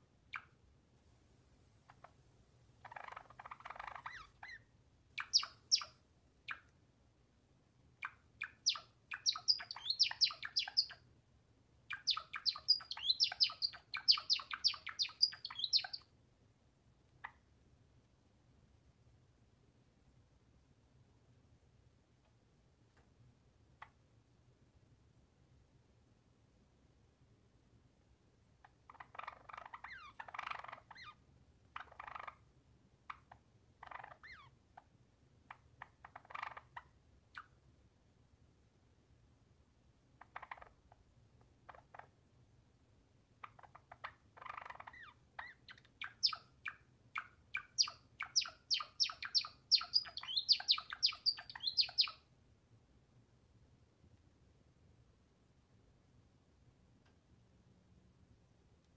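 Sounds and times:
sparrow chirping: 2.8 - 6.7, 8.0 - 11.0, 11.9 - 16.1, 28.9 - 31.2, 31.8 - 32.4, 33.1 - 34.5, 35.5 - 36.8, 40.3 - 40.8, 43.4 - 52.2.

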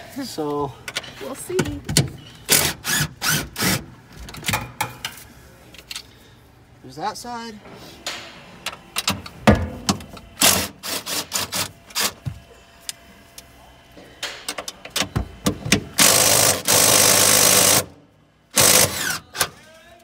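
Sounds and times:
impact wrench running: 2.5 - 3.9, 9.0 - 12.4, 15.1 - 19.4.

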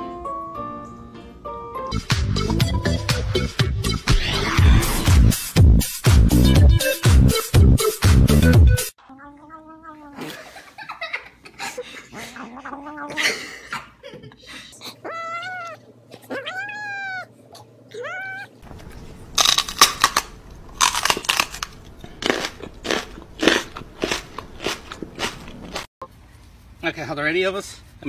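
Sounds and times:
cat meowing: 9.0 - 10.3, 12.3 - 13.2, 14.8 - 17.3, 17.9 - 18.6.

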